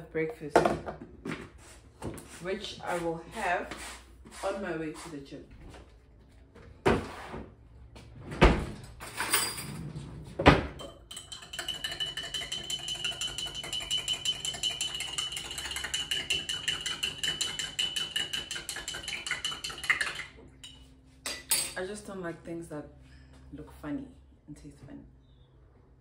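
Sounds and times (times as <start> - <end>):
spoon clinking in glass: 10.8 - 21.8.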